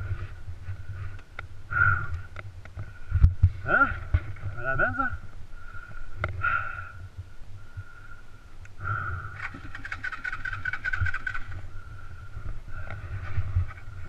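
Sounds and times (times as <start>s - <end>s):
quick clicks and rattles: 9.4s - 11.6s.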